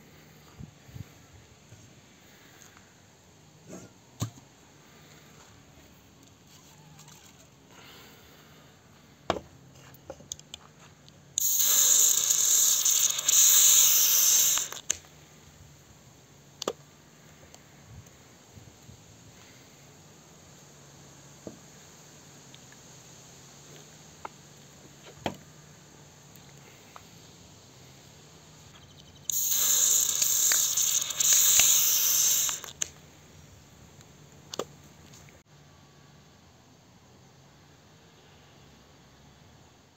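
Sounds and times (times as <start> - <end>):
can foam spraying with hiss: 11.4 - 14.9, 29.3 - 33.0.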